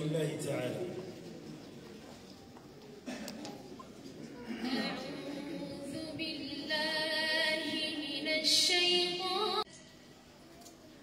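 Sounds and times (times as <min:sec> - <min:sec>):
woman reciting melodically: 0:04.5 - 0:09.7.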